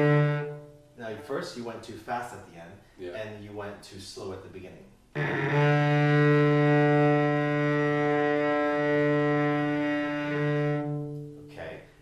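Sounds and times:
cello bowed low note: 0.0s - 0.8s, 5.2s - 11.7s.

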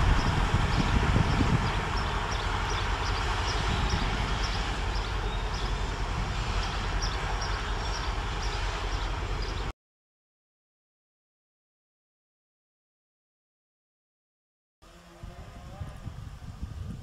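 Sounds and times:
distant diesel train rumbling: 0.0s - 9.7s
train hiss: 0.0s - 9.7s.

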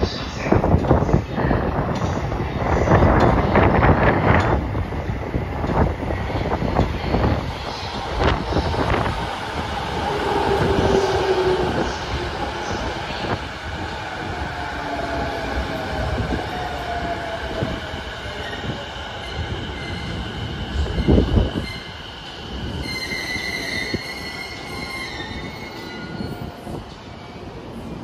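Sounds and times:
train brakes squealing: 22.7s - 26.8s.

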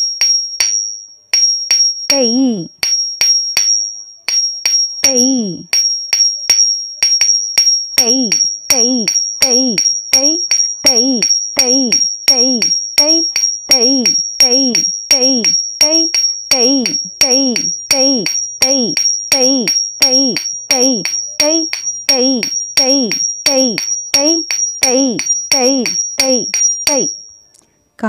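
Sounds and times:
sharp rhythmic beats: 1.4s - 27.3s
person calling syllables: 2.1s - 2.8s, 5.0s - 5.7s, 7.5s - 27.2s.

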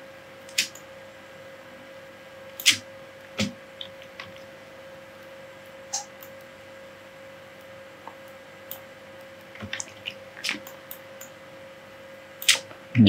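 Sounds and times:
low electrical hum: 0.0s - 13.0s
computer mouse clicks: 0.4s - 0.8s, 12.4s - 12.6s.

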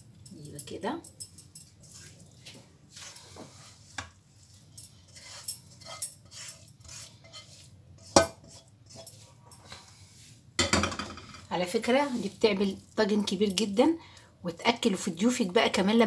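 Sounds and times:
spatula scraping frying pan: 1.6s - 13.7s.

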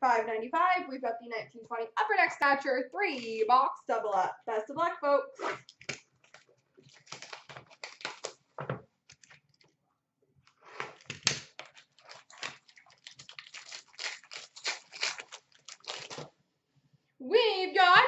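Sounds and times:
card pack wrapper crinkling and tearing: 5.6s - 9.6s, 10.8s - 16.3s.

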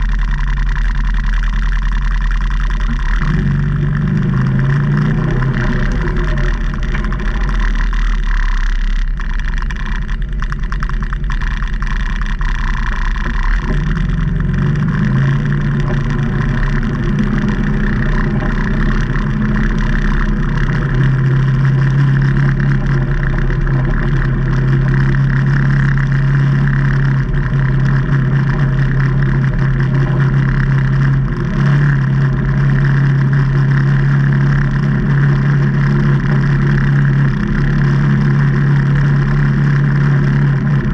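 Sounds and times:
side-by-side engine running: 0.0s - 40.9s.

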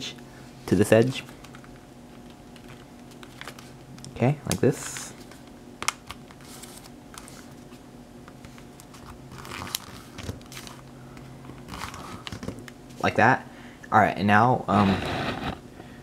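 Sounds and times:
paper being folded and creased: 8.8s - 10.8s, 11.7s - 12.5s.

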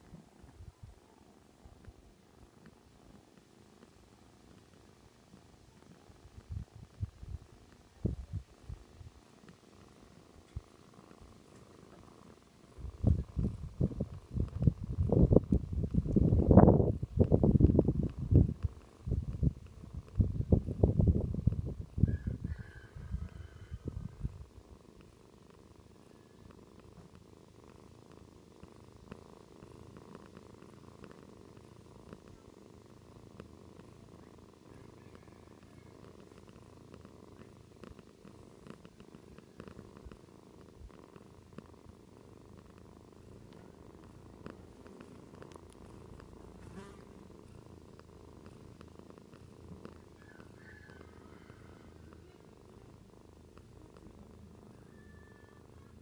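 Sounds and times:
cat purring: 0.0s - 56.0s
faint clicks: 42.7s - 46.4s.

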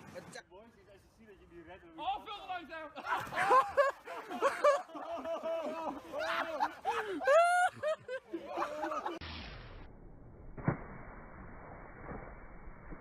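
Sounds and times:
high-pitched laughter and shrieks: 3.0s - 9.2s.

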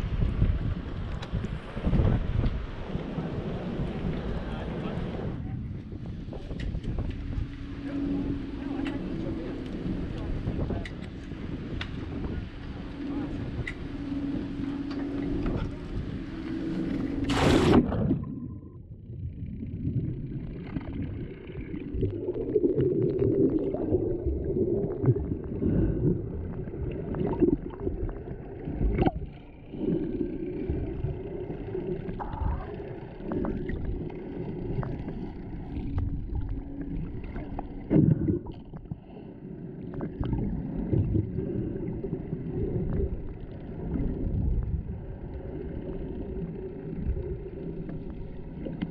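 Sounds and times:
underwater rumble of water: 0.0s - 48.9s
bubbling: 14.6s - 48.9s
splash: 17.2s - 18.4s.

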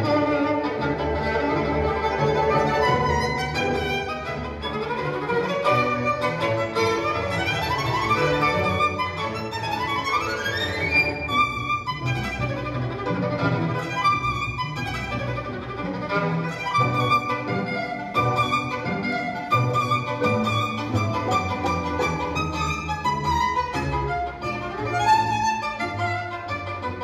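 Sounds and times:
low accompaniment: 0.0s - 27.0s
violin music over loudspeakers: 0.0s - 27.0s.

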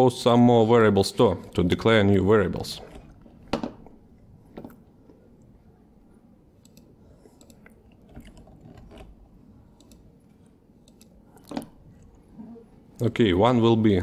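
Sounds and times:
mouse and keyboard clicks: 10.8s - 11.7s.

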